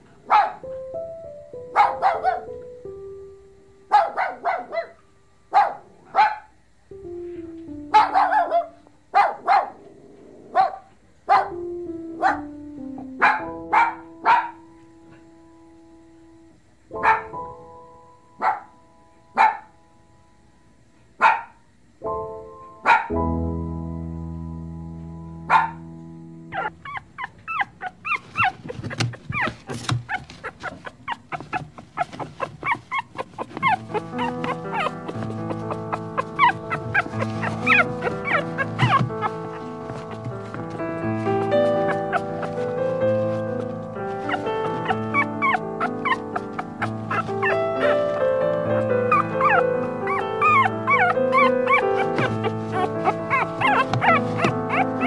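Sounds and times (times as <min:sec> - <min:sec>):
puppies barking: 0:01.8 - 0:02.5, 0:03.9 - 0:06.5, 0:07.9 - 0:09.9, 0:10.5 - 0:11.6, 0:12.2 - 0:12.5, 0:13.2 - 0:14.6, 0:25.5 - 0:25.8, 0:26.5 - 0:55.0
background music: 0:22.0 - 0:26.8, 0:33.6 - 0:55.0.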